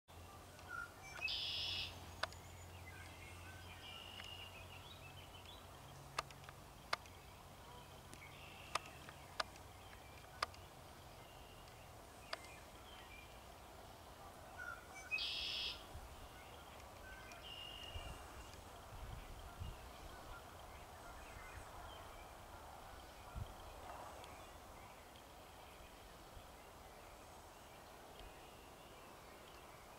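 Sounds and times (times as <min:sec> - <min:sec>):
sharp single clicks: 0:05.4 - 0:07.2, 0:08.1 - 0:10.6
short high bird call: 0:15.1 - 0:15.8.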